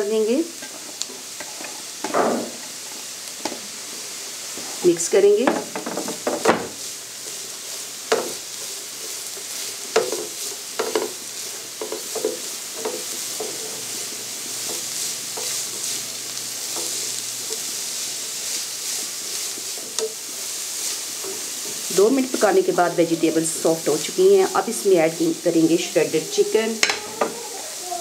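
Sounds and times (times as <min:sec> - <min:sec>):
vegetables sizzling in oil: 0:00.0 - 0:28.0
spatula scraping a pan: 0:05.8 - 0:24.1.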